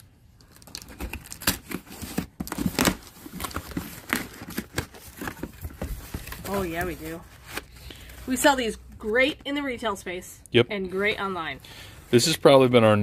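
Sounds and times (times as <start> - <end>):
packaging crinkling and rustling: 0.4 - 8.4.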